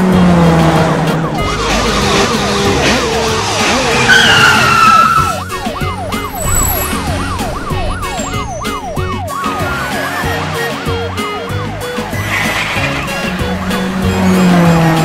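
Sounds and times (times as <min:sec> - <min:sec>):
background music: 0:00.0 - 0:15.0
police siren yelping: 0:00.4 - 0:15.0
high falling screech: 0:04.0 - 0:09.2.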